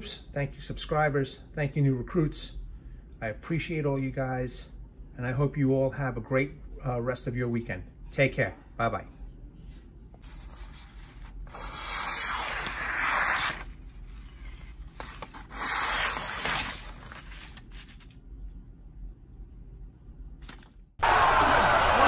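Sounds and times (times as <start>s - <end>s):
knife slicing paper: 10.2s - 18.2s.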